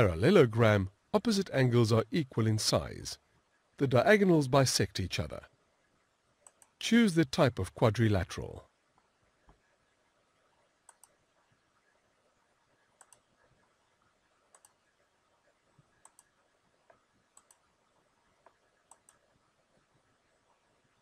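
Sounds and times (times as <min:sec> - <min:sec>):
computer mouse clicks: 0:06.4 - 0:06.8, 0:10.8 - 0:11.2, 0:13.0 - 0:13.4, 0:14.5 - 0:14.8, 0:16.0 - 0:19.4.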